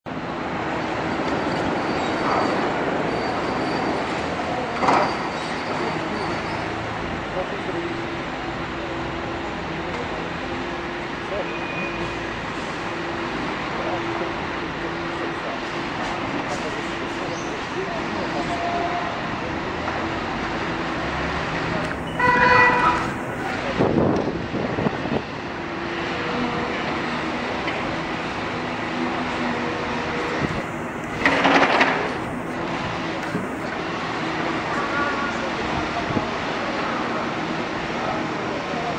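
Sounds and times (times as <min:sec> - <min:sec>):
excavator engine and hydraulics: 0:00.1 - 0:38.9
heavy construction machinery rumbling: 0:00.1 - 0:38.9
faint high squeal: 0:01.5 - 0:06.8, 0:11.4 - 0:12.3.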